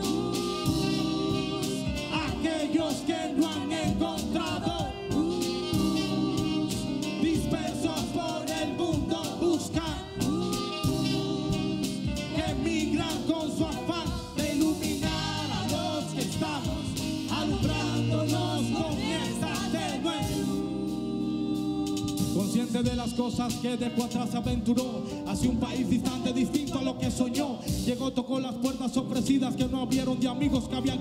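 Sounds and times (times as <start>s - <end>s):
women singing chorus: 0.0s - 13.0s, 14.4s - 22.4s
live band playing rap song: 0.0s - 21.0s, 21.8s - 31.0s.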